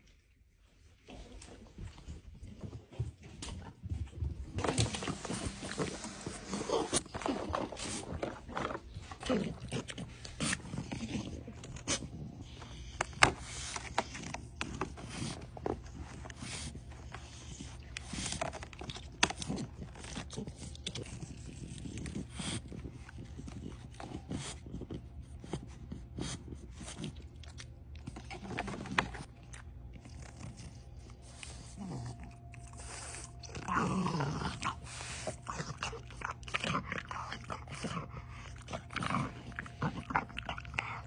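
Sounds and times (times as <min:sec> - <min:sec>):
dog breathing and sniffing: 0:04.5 - 0:29.3, 0:34.6 - 0:41.0.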